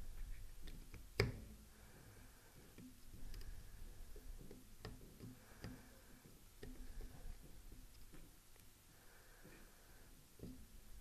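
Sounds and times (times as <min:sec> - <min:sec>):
tools clicking and tapping: 0:04.2 - 0:08.3.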